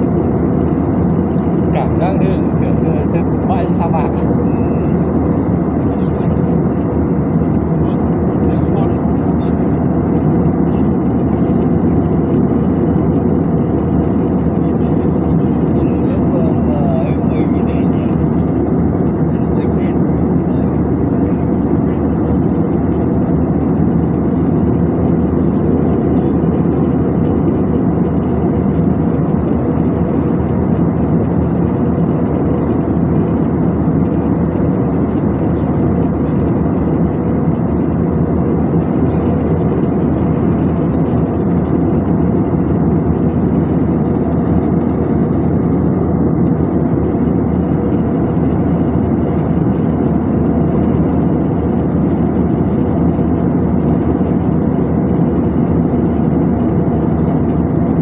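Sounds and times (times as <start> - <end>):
jet engines roaring: 0.0 - 58.0.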